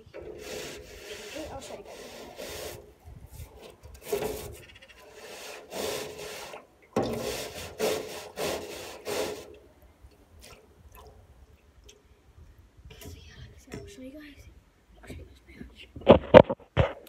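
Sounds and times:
broom scrubbing metal wheelbarrow: 0.0s - 9.6s.

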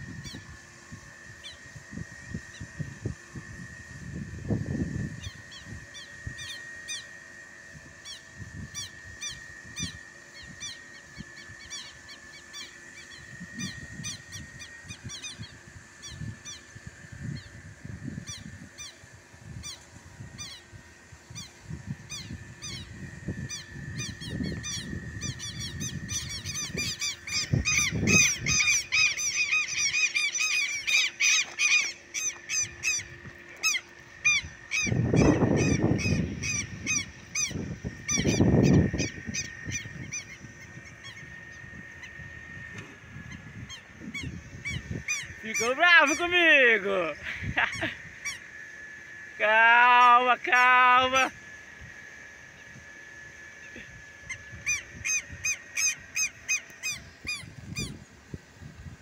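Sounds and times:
lapwing strident calls: 0.0s - 0.6s, 1.3s - 2.9s, 5.0s - 58.2s.

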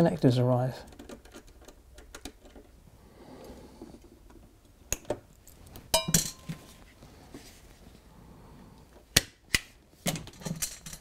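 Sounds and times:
metallic clatter with ring: 5.9s - 6.7s.

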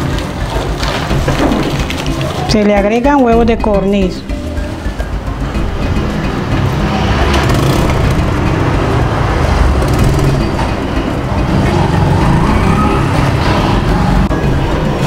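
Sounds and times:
loud low rumbling: 4.3s - 15.0s.

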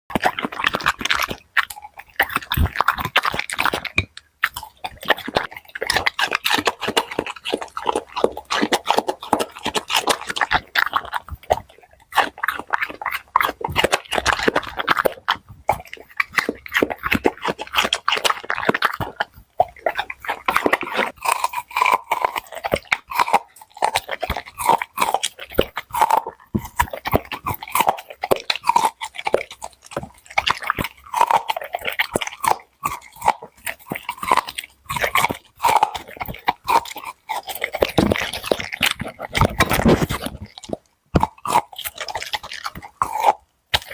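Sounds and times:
dog crunching cucumber: 0.1s - 43.9s.

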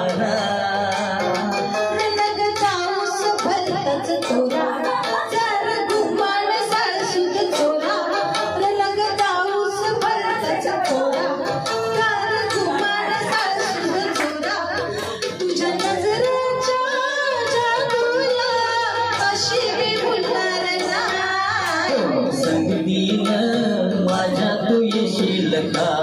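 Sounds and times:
amplified backing music with beat: 0.0s - 16.8s
woman singing into a microphone: 0.0s - 26.0s.

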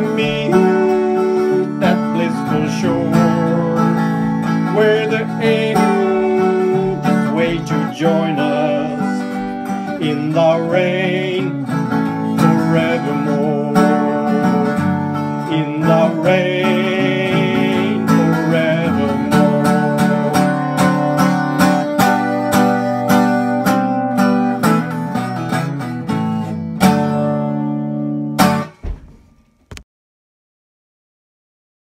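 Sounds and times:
guitar strumming: 0.0s - 29.4s
high wavering note: 4.7s - 10.8s.

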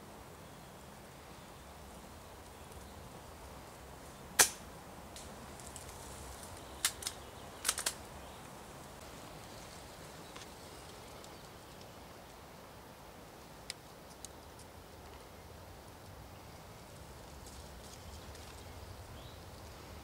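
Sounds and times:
airsoft guns firing: 4.4s - 4.6s.

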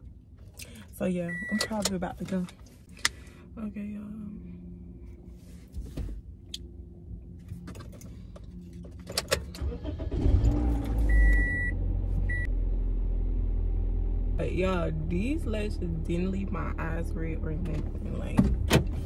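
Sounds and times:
car engine starting and idling: 0.0s - 19.0s
dashboard warning chime beeps: 1.2s - 1.9s, 11.0s - 12.5s
car cabin hum: 14.4s - 19.0s.

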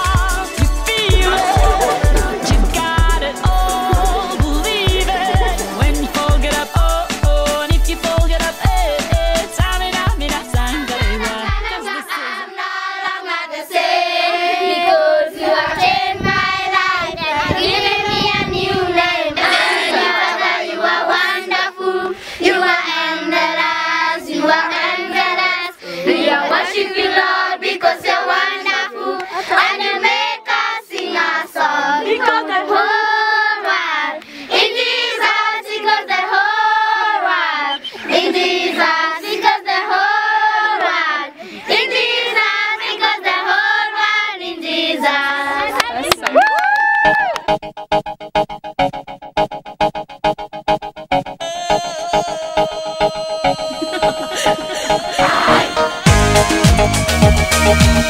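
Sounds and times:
children singing: 0.0s - 7.7s, 8.4s - 45.8s, 51.4s - 58.0s
hand claps: 45.8s - 47.6s.

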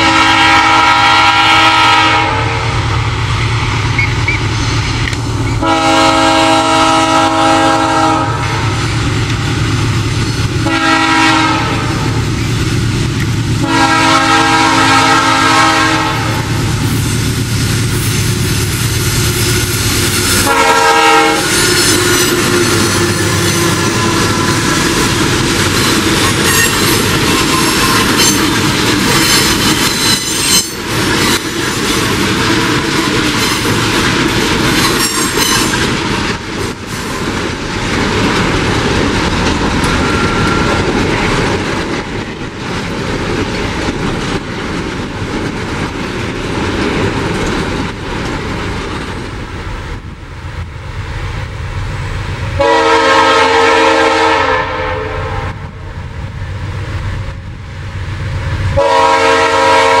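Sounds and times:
train air horn blast: 0.0s - 3.0s, 5.6s - 8.8s, 10.6s - 12.2s, 13.6s - 17.0s, 19.1s - 24.9s, 52.6s - 55.7s, 58.8s - 60.0s
diesel locomotive engines running: 0.0s - 60.0s
wagons clattering over rail joints: 21.6s - 49.3s.

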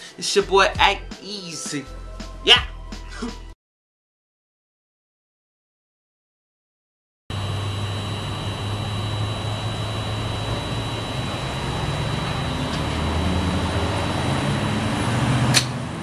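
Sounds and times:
thin high whine: 7.3s - 15.0s
fuel pump humming with flow: 7.3s - 15.6s.

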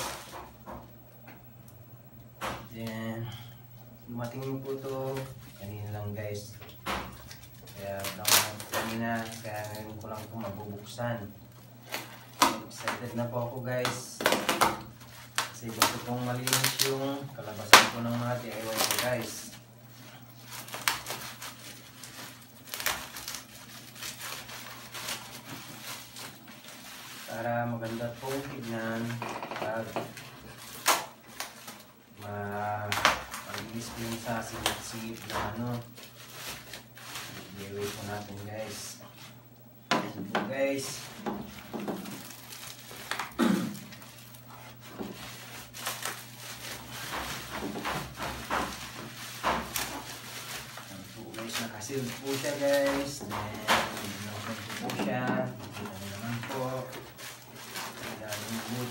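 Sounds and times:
bubble wrap crinkling: 0.0s - 0.6s, 4.1s - 39.4s, 40.5s - 58.9s.

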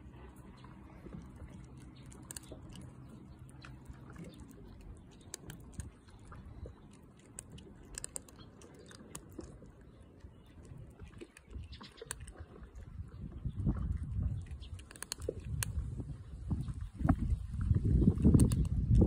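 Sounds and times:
cats crunching dry kibble: 0.0s - 13.2s, 14.0s - 16.2s, 17.8s - 19.0s.

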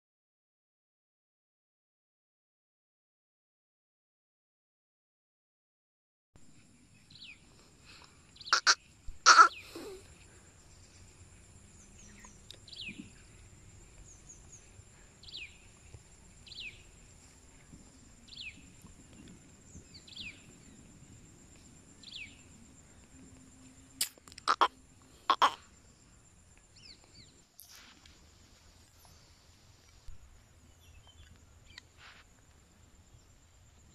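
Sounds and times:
faint high-pitched whine: 6.4s - 33.9s
bird chirping: 6.6s - 17.0s, 18.3s - 20.9s, 21.6s - 23.1s, 25.3s - 25.6s, 28.9s - 31.9s
loud sharp calls or cracks: 8.5s - 10.0s, 24.0s - 24.7s, 25.3s - 25.6s.

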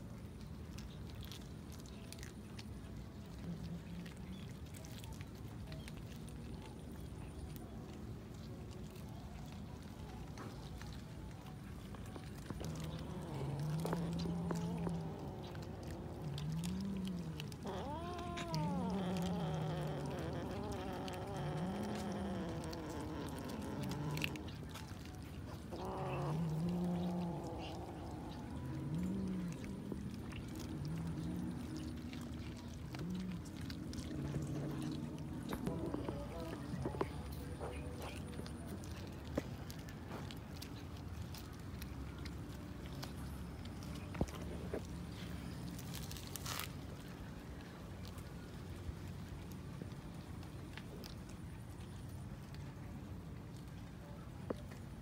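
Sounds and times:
cats chewing wet clicks: 0.0s - 55.0s
low background rumble: 0.0s - 55.0s
cat meowing: 13.8s - 24.4s.

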